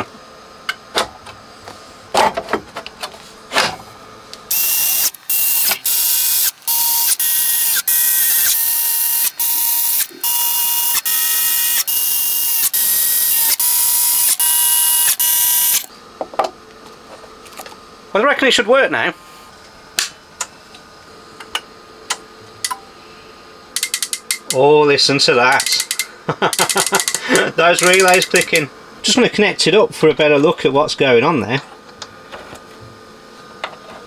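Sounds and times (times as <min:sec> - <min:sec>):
cordless screwdriver motor whirring: 0:04.5 - 0:15.9.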